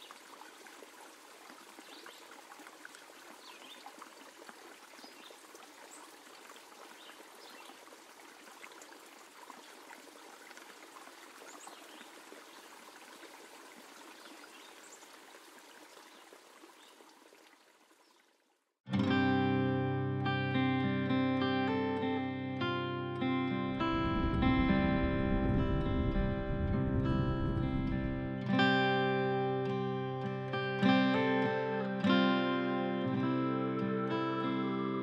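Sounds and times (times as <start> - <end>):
trickling water: 0.0 - 18.8.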